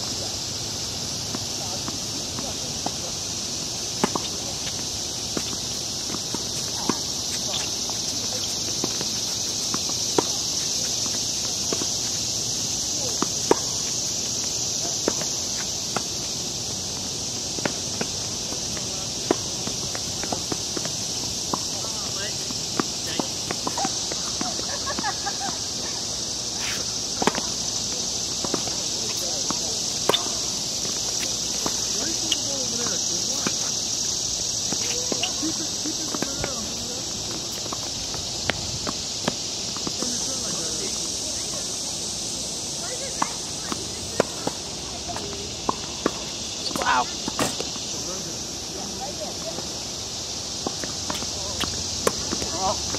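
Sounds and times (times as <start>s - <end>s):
insects hissing: 0.0s - 52.9s
shoes scuffing on court: 1.3s - 41.8s, 42.8s - 48.1s, 50.6s - 52.9s
tennis ball bouncing: 3.8s - 12.2s, 13.0s - 16.3s, 17.3s - 25.6s, 26.9s - 33.7s, 43.2s - 47.8s, 50.6s - 52.9s
racket hitting tennis ball: 13.0s - 16.2s, 26.6s - 33.6s, 50.6s - 52.9s.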